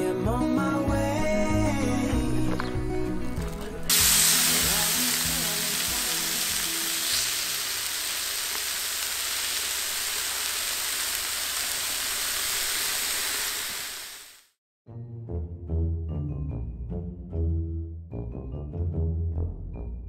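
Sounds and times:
background music: 0:00.0 - 0:07.6, 0:14.9 - 0:20.0
meat sizzling on a grill: 0:03.9 - 0:14.5.

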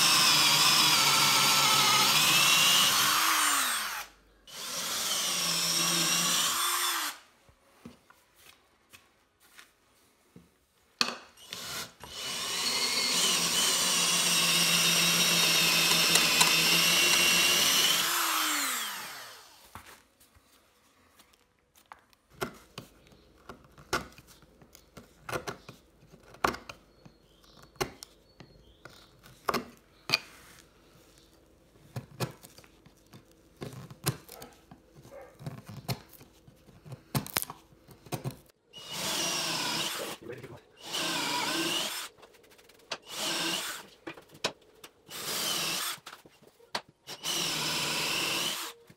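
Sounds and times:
cordless drill boring into wood: 0:00.0 - 0:07.2, 0:11.4 - 0:19.6, 0:38.8 - 0:40.2, 0:40.8 - 0:42.1, 0:43.0 - 0:43.9, 0:45.1 - 0:46.1, 0:47.1 - 0:48.8.

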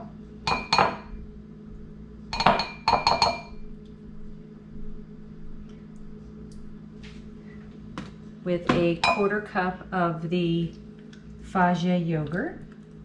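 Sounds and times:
spoon clinking against glass bowl: 0:00.5 - 0:01.1, 0:02.4 - 0:03.6, 0:09.0 - 0:09.3.

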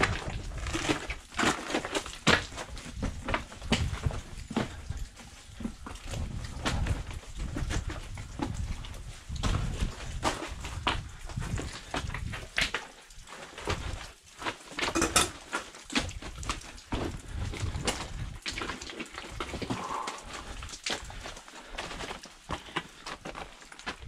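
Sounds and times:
footsteps on a trail: 0:00.0 - 0:14.8, 0:15.6 - 0:24.0.

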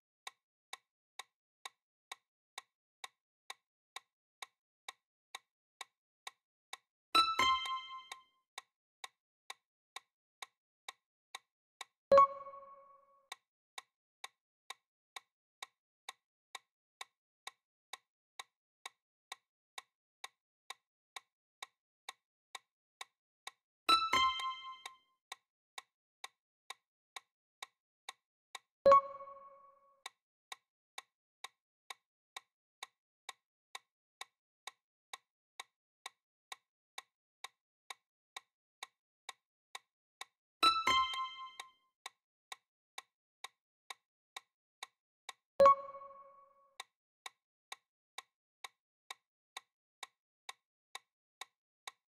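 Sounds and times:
timer ticking clicks: 0:00.2 - 0:08.7, 0:09.5 - 0:18.0, 0:18.8 - 0:25.0, 0:26.7 - 0:30.2, 0:31.9 - 0:52.0
countdown timer ticking: 0:07.2 - 0:08.2, 0:12.1 - 0:13.4, 0:23.9 - 0:25.0, 0:28.9 - 0:30.1, 0:40.6 - 0:41.8, 0:45.6 - 0:46.6.

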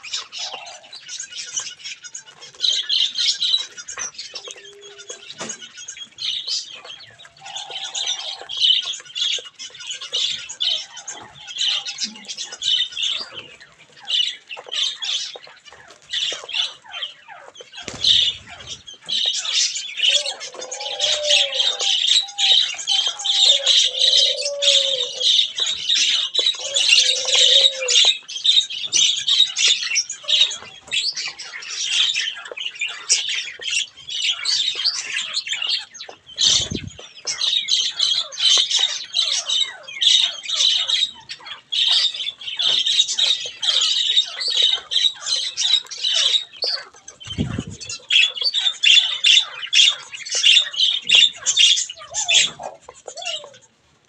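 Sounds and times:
budgerigars chattering and squawking: 0:00.0 - 0:53.8
lower drawn-out bird calls: 0:16.6 - 0:28.7.

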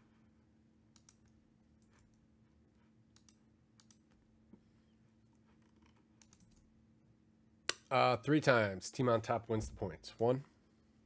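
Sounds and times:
faint low hum: 0:00.0 - 0:11.0
computer clicks: 0:00.9 - 0:02.2, 0:03.1 - 0:04.2, 0:06.2 - 0:06.6.

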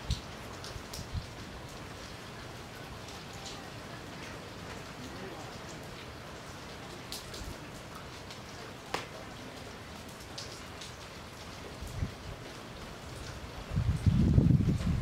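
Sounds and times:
wind rumble on microphone: 0:00.0 - 0:01.4, 0:11.7 - 0:12.5, 0:13.2 - 0:15.0
light rain falling: 0:00.0 - 0:15.0
raindrops ticking: 0:00.0 - 0:15.0.

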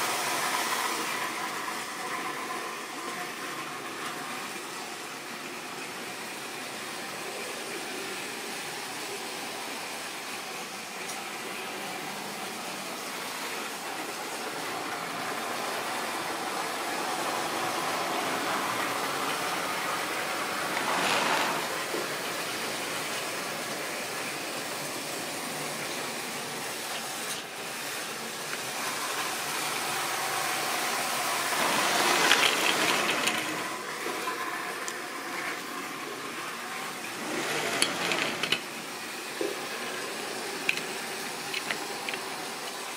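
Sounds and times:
model locomotive motors whirring: 0:00.0 - 0:42.9
wheels rattling on rails: 0:13.2 - 0:24.0, 0:31.3 - 0:36.0, 0:37.1 - 0:38.9.

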